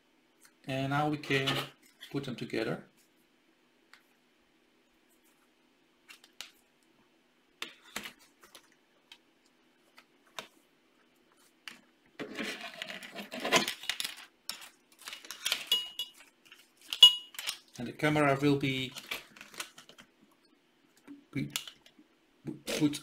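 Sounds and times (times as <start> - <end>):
plastic pieces clicking and rattling: 12.4 - 15.8, 16.5 - 17.7.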